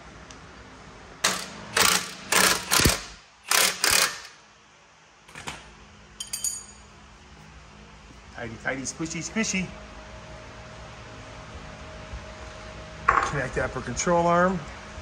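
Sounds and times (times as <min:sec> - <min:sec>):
ratchet wrench clicking: 0:01.2 - 0:04.4.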